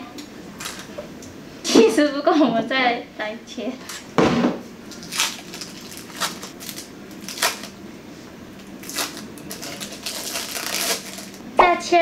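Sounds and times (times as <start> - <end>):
plastic film crackling: 4.9 - 7.8, 8.6 - 11.4.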